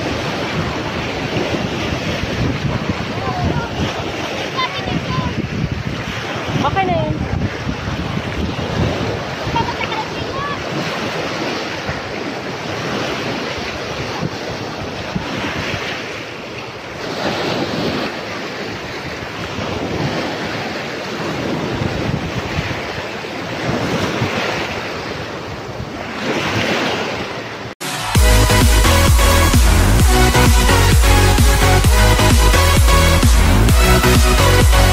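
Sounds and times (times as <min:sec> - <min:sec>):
wind buffeting microphone: 0:00.0 - 0:27.7
surf washing onto beach: 0:00.0 - 0:34.9.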